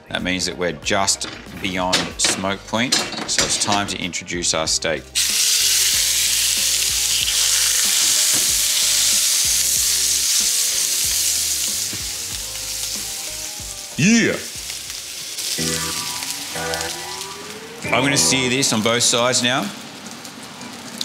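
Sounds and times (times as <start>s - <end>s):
steak sizzling in a pan: 5.2s - 21.0s.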